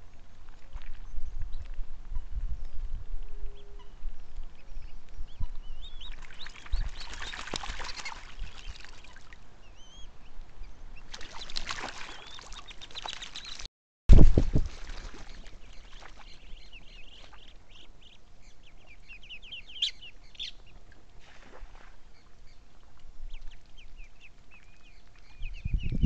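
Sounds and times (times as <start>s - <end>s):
ducks splashing in water: 6.0s - 9.5s, 11.0s - 13.7s, 14.3s - 17.9s, 20.8s - 25.2s.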